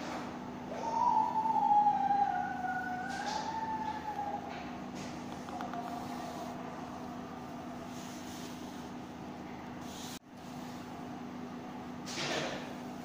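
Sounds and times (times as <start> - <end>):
constant low hum: 0.0 - 13.0
wavering high tone: 0.8 - 8.3.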